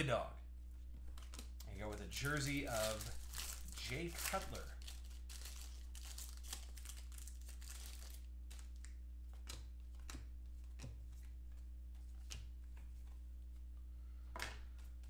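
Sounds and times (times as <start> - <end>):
steady low hum: 0.0 - 15.0
cards being sorted: 1.0 - 13.3
foil wrapper crinkling: 1.1 - 8.9.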